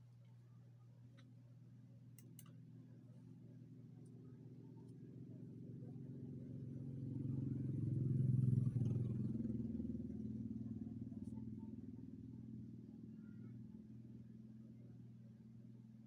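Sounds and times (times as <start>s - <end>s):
vehicle engine passing by: 6.9s - 10.4s.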